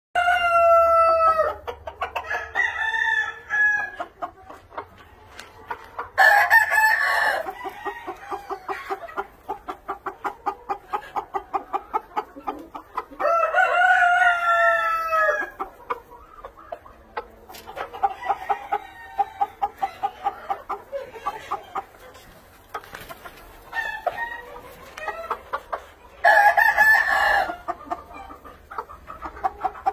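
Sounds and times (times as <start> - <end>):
cockerels crowing: 0.2 - 4.1, 6.2 - 9.2, 13.0 - 15.9, 26.2 - 28.3
chickens clucking: 0.2 - 29.9.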